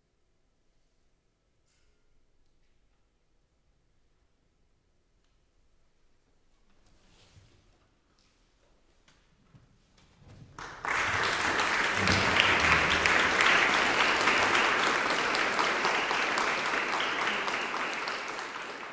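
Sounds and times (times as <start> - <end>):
audience applause: 10.6 - 18.9.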